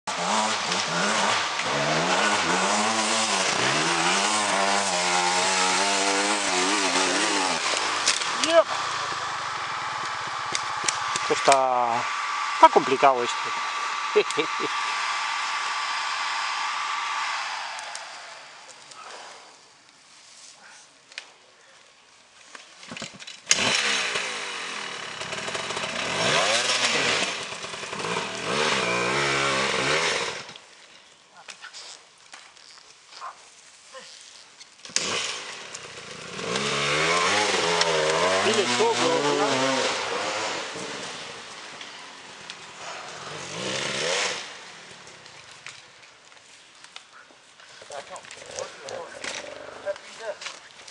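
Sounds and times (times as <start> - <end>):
dirt bike engine revving: 0.1 - 18.7, 23.5 - 30.6, 35.0 - 45.1.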